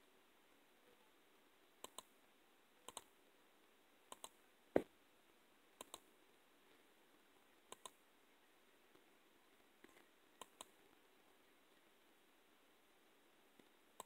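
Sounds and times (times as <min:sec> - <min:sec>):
on-screen keyboard clicks: 0:01.8 - 0:02.1, 0:02.8 - 0:03.1, 0:04.1 - 0:04.4, 0:05.8 - 0:06.1, 0:07.7 - 0:08.0, 0:09.9 - 0:10.8.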